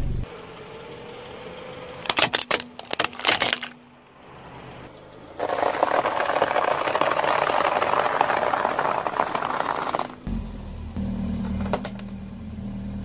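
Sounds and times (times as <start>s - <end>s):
tyre crushing cereal balls: 2.0s - 3.8s, 5.3s - 10.3s
plastic cracking under tyre: 2.0s - 3.9s, 5.3s - 10.3s.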